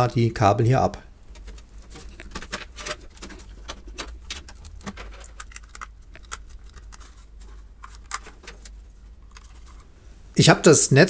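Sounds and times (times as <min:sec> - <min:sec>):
steady low hum: 0:00.0 - 0:11.0
cables and connectors rattling: 0:01.2 - 0:10.0.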